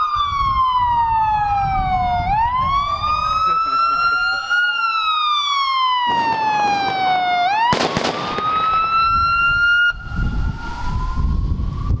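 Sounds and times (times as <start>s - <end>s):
siren wailing: 0.0s - 12.0s
sharp bangs: 6.0s - 9.2s.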